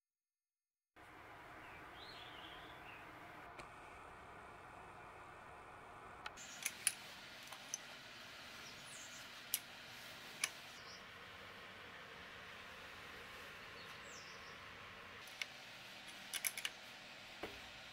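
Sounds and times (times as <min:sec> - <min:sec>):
faint steady hiss: 0:01.0 - 0:17.9.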